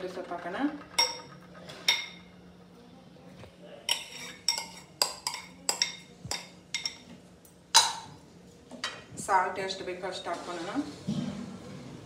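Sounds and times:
metal utensils clinking on steel pot: 0.1s - 2.3s, 3.9s - 8.1s.

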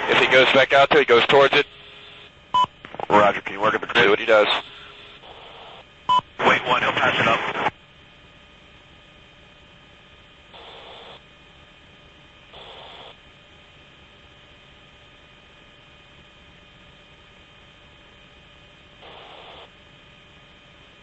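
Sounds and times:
static bursts: 0.0s - 7.8s, 10.6s - 11.2s, 12.6s - 13.2s, 19.0s - 19.7s
radio channel hiss and hum: 0.0s - 21.0s.

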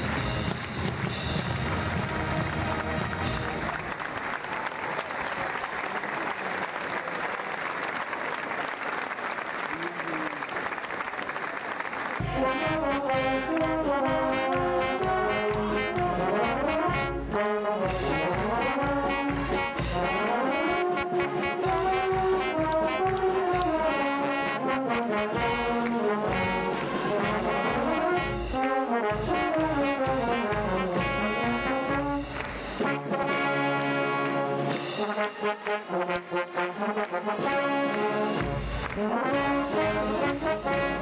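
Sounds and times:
brass band playing: 0.0s - 5.9s, 11.8s - 41.0s
applause: 0.0s - 20.0s, 21.6s - 24.0s, 24.9s - 41.0s
bass drum beat: 12.2s - 20.3s, 21.0s - 24.0s, 25.3s - 33.0s.

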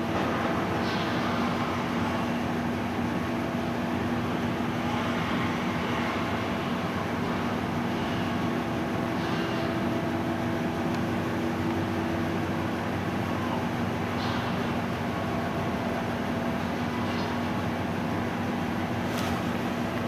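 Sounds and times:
ship machinery droning: 0.0s - 20.0s.

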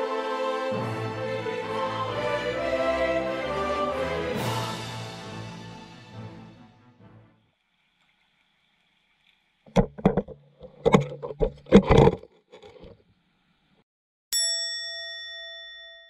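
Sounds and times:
bell-like chime: 14.4s - 16.0s.

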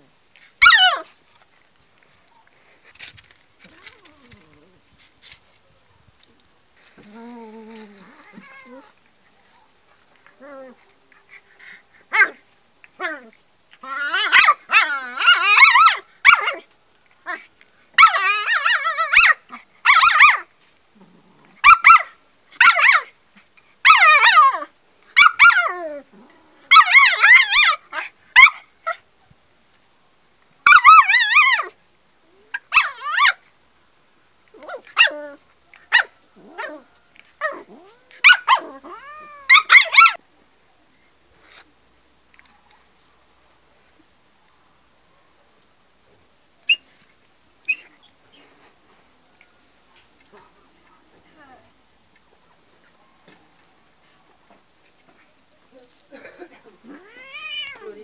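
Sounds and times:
puppy and cat growling cries: 3.6s - 4.9s, 6.9s - 9.0s, 10.2s - 16.7s, 18.0s - 23.0s, 23.8s - 28.6s, 30.7s - 33.4s, 34.6s - 40.2s, 55.8s - 58.0s.

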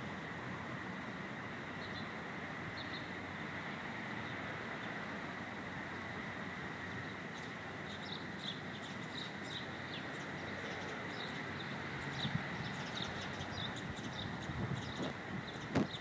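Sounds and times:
steady outdoor hiss: 0.0s - 16.0s
small birds chirping: 2.7s - 3.1s, 6.9s - 16.0s.

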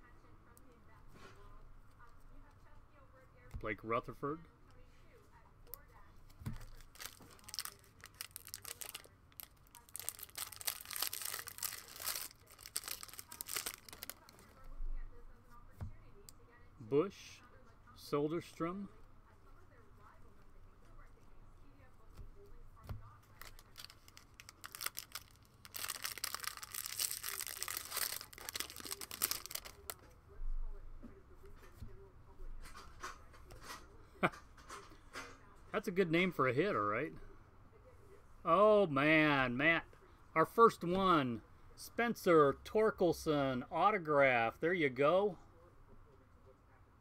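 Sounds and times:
foil wrapper tearing and crinkling: 6.5s - 14.6s, 23.2s - 30.0s.

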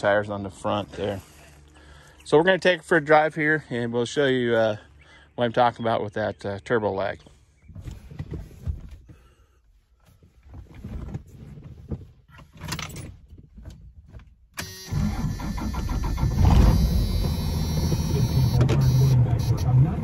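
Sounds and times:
diesel engine starting and running: 14.6s - 20.0s.

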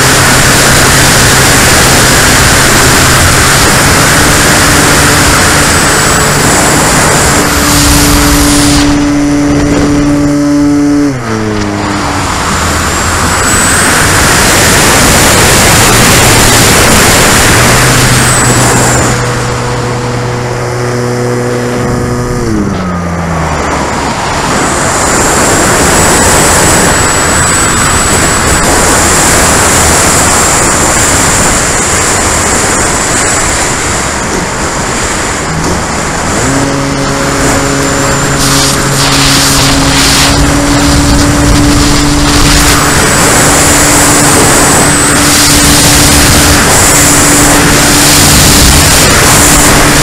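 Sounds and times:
model airplane motor and propeller: 0.0s - 50.0s
wind rush on microphone: 0.0s - 50.0s.

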